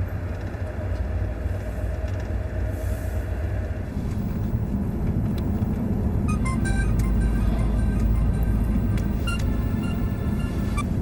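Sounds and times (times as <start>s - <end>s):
moving vehicle rumble: 0.0s - 11.0s.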